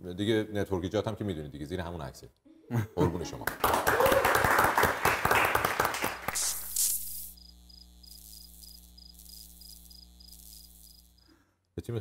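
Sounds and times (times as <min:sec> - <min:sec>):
applause: 0:03.4 - 0:06.4
high pulsed chirping: 0:06.3 - 0:11.3.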